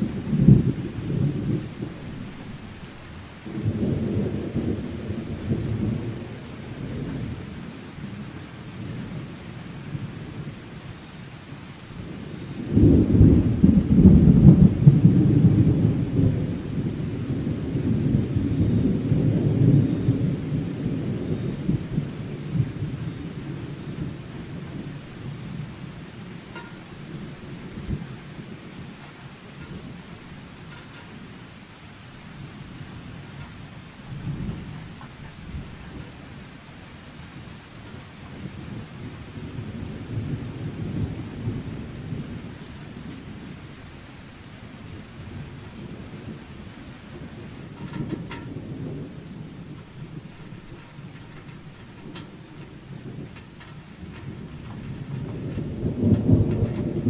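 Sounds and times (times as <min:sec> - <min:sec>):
steady rain: 0:00.0 - 0:57.0
thunder rumbling: 0:00.0 - 0:57.0
thunder thumps: 0:12.7 - 0:25.6, 0:26.5 - 0:28.1, 0:47.2 - 0:57.0.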